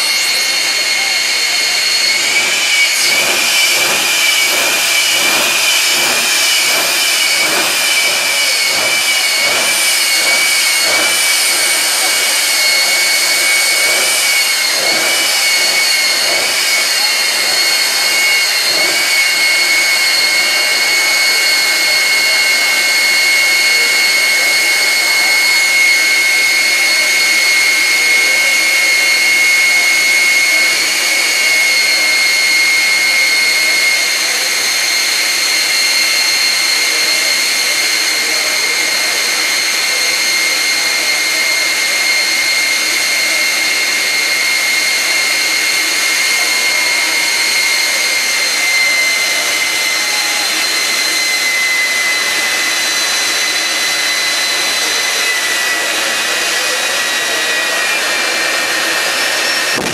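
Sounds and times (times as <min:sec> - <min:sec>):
ragged engine pulsing: 0:00.0 - 0:23.7, 0:57.8 - 0:59.9
jet engine whine: 0:00.0 - 0:59.9.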